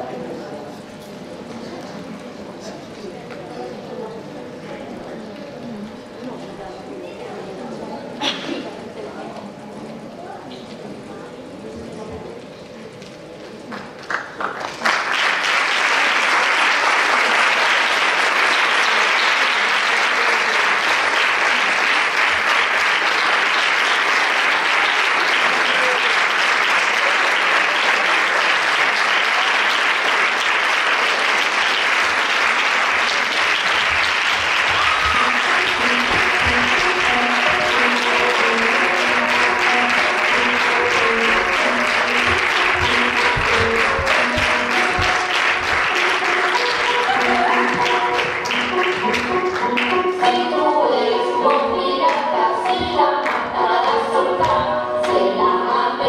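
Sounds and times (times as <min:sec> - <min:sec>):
audience applauding: 0:13.7 - 0:50.1
music with repeated notes: 0:35.2 - 0:56.0.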